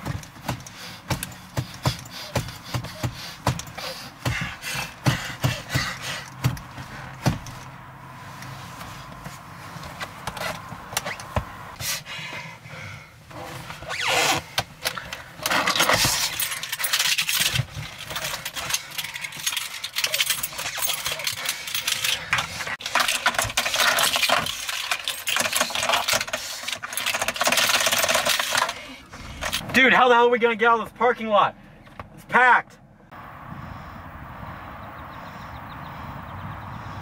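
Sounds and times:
seat belt buckle and keys rattling: 0:00.0 - 0:07.8, 0:08.4 - 0:11.8, 0:13.6 - 0:29.6.

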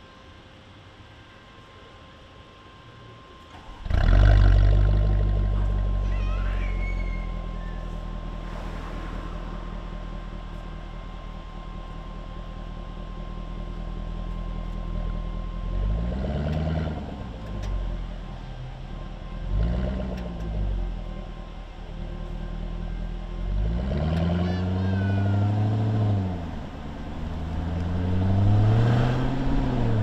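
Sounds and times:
car engine starting and idling: 0:03.4 - 0:30.0
car engine revving as it moves off: 0:03.6 - 0:06.1, 0:15.7 - 0:18.1, 0:19.3 - 0:21.2, 0:22.5 - 0:30.0.

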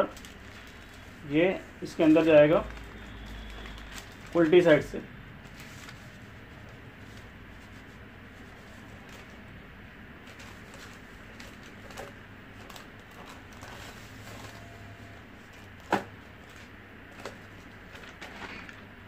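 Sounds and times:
faint steady hum: 0:00.0 - 0:19.0
paper rustling and sliding: 0:05.4 - 0:09.4, 0:10.2 - 0:19.0.

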